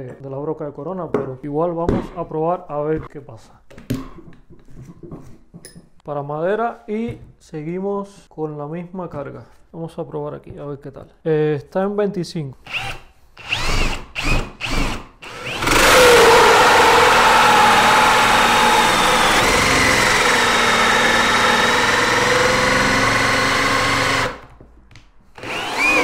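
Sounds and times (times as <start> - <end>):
cordless drill motor whine: 12.7 - 24.4, 25.4 - 26.0
hole saw rasping wood: 15.4 - 24.4.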